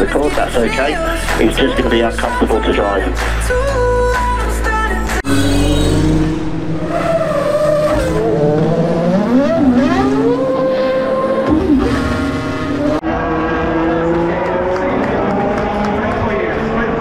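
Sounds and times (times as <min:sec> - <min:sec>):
music with voice over loudspeakers: 0:00.0 - 0:04.5
racing car engines accelerating: 0:05.2 - 0:17.0.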